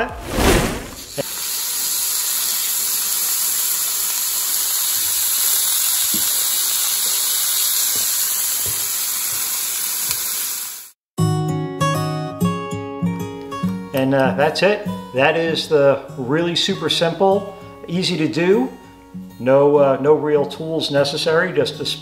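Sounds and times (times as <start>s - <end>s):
meat sizzling in a pan: 1.0s - 11.0s
acoustic guitar music: 11.2s - 22.0s.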